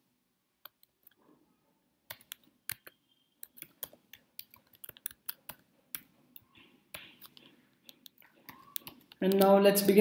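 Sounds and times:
typing on computer keyboard: 2.1s - 9.9s.

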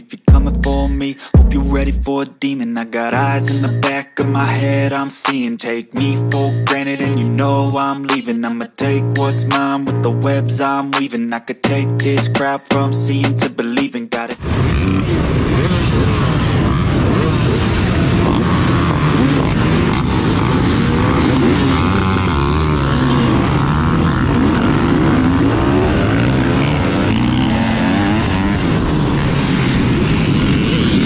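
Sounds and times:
dirt bike engines revving: 14.4s - 31.0s.

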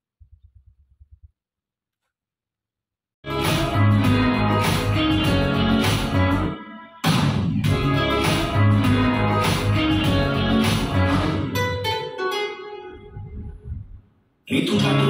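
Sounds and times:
song with guitar and beat: 3.3s - 6.5s, 7.1s - 13.0s.

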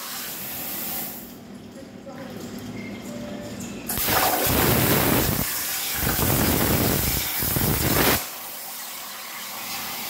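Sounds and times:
plasma cutter hissing: 4.0s - 8.3s.

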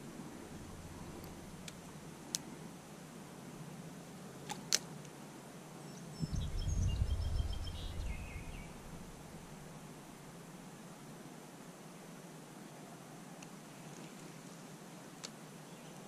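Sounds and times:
songbird singing: 0.0s - 2.4s, 5.8s - 10.1s
wind buffeting microphone: 6.2s - 9.8s.

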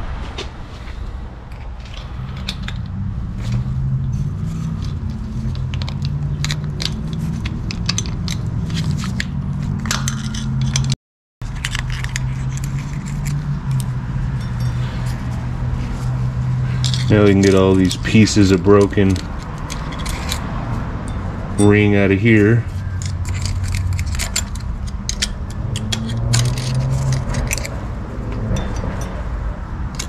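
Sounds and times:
steady low hum: 0.0s - 5.6s
small metal clicks and scrapes: 1.9s - 29.2s.

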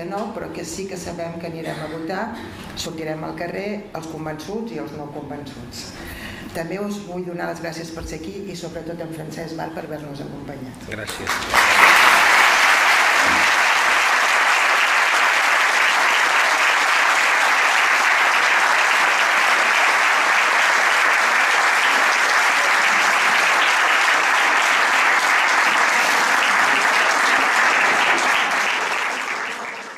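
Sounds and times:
audience applauding: 10.9s - 29.9s.

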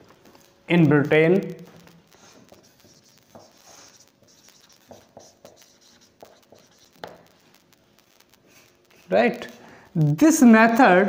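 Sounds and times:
marker pen writing on whiteboard: 2.2s - 7.2s.

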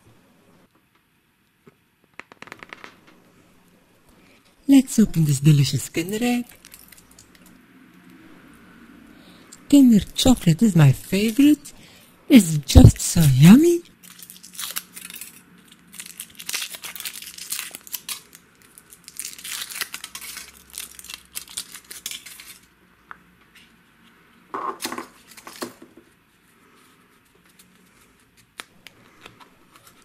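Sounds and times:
foil wrapper crinkling and tearing: 6.4s - 7.3s, 13.9s - 22.7s.

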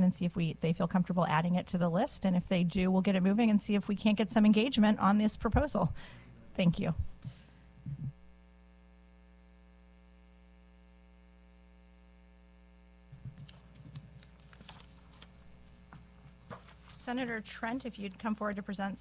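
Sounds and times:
electrical hum: 0.0s - 19.0s
faint clicks and rustles: 13.1s - 18.6s.

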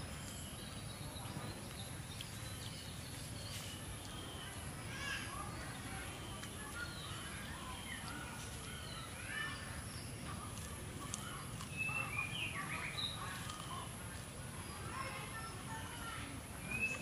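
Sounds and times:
chorus of high chirping calls: 0.0s - 17.0s.

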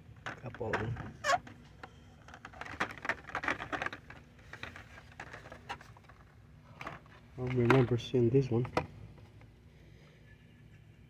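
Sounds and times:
faint steady hum: 0.0s - 11.0s
plastic blister packs clicking: 2.2s - 6.2s.

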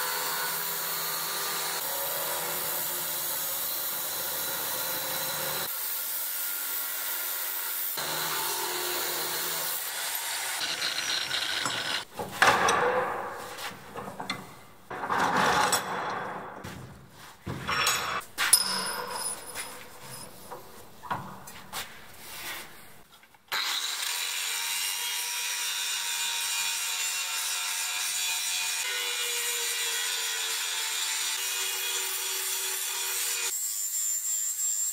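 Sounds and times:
angle grinder cutting steel: 0.0s - 12.1s, 23.5s - 34.9s
metal scraping and knocking: 10.9s - 21.8s.

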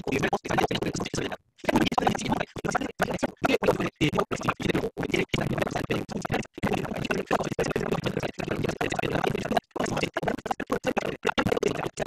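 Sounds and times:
crackling microphone noise: 0.0s - 12.0s.

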